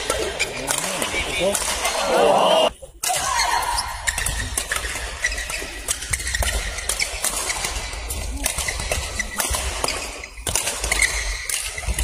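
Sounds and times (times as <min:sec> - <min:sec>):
shoes squeaking on court floor: 0:00.0 - 0:01.8, 0:03.7 - 0:12.0
racket striking shuttlecock: 0:04.0 - 0:12.0.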